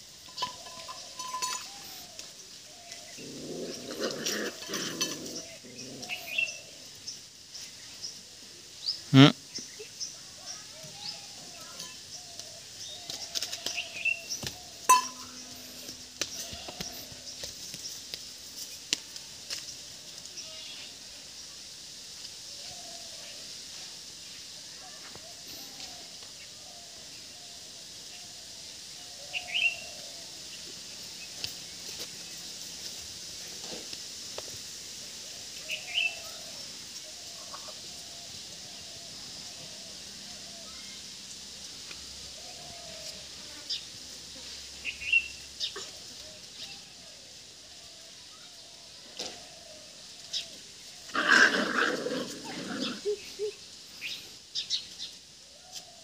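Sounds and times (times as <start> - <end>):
steady high hiss: 0.0 - 56.0
birds chirping: 0.1 - 18.9.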